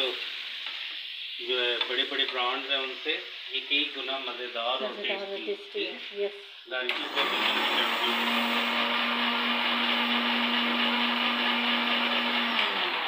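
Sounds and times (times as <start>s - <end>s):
electric blender grinding: 6.9s - 13.0s.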